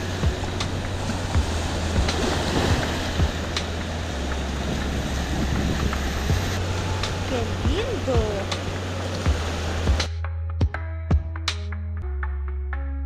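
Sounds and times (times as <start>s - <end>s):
river water rushing: 0.0s - 10.1s.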